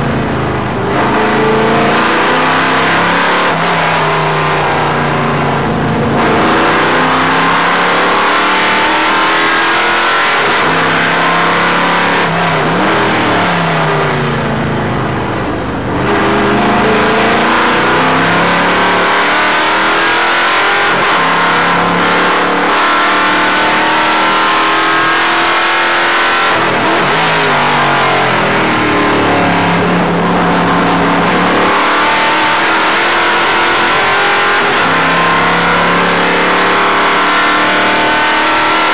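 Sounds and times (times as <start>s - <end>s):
race car engine revving: 0.0s - 38.9s.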